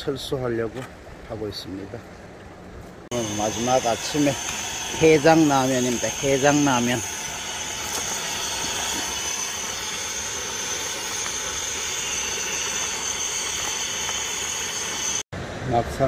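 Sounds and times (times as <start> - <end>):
gas burner hissing: 3.1 - 15.2.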